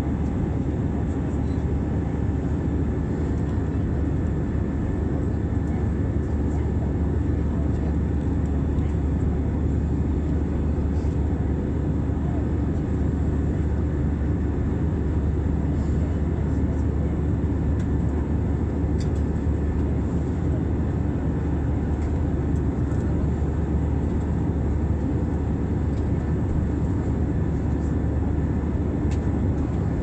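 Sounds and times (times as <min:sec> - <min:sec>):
jet airliner cabin noise: 0:00.0 - 0:30.0.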